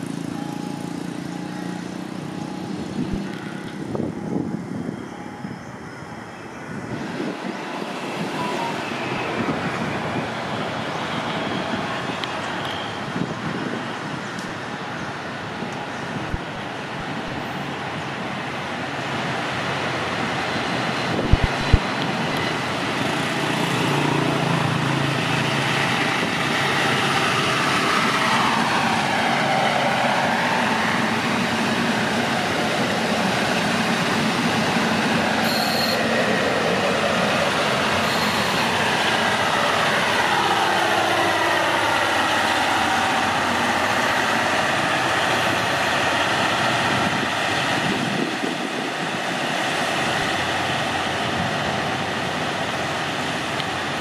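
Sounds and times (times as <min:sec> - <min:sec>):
train rumbling past: 0:00.0 - 0:54.0.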